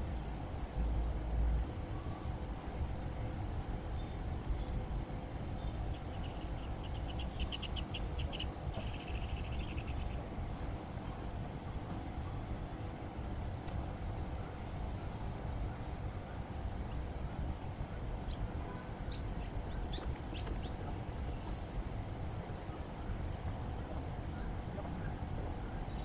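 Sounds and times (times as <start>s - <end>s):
insects droning: 0.0s - 26.0s
rapid chirps: 5.6s - 11.3s.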